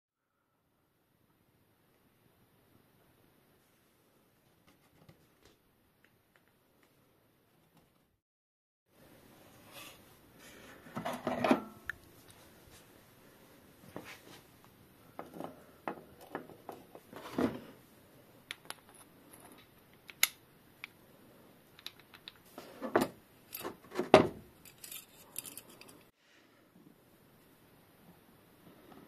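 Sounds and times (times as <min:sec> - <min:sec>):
metal tool parts clinking: 0:23.5 - 0:23.7, 0:24.6 - 0:26.1.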